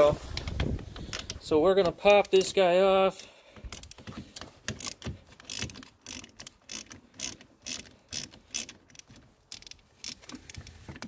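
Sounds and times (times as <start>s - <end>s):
ratchet wrench clicking: 4.8s - 10.5s.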